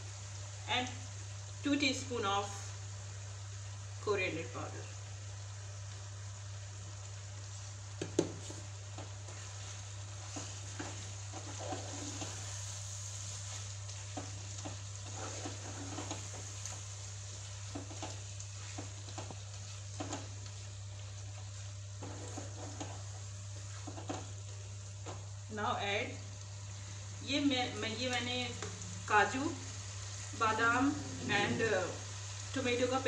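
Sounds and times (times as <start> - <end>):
chicken sizzling in pan: 0.0 - 33.0
wooden spatula scraping pan: 8.4 - 16.8, 21.6 - 24.3, 30.6 - 32.0
steady low hum: 24.4 - 32.6.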